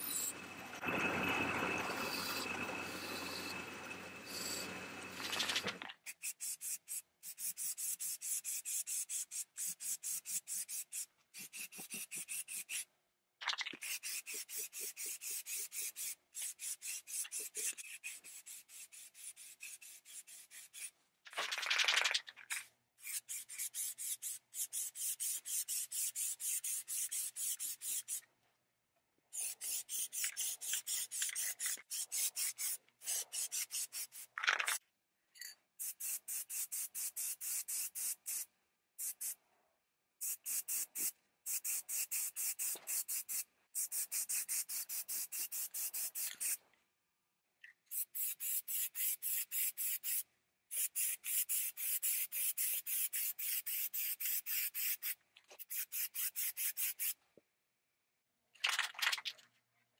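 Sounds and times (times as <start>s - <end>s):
spray can ball rattling: 5.1s - 12.8s, 13.4s - 28.2s, 29.4s - 34.8s, 35.8s - 38.4s, 40.2s - 46.6s, 47.9s - 57.2s, 58.6s - 59.4s.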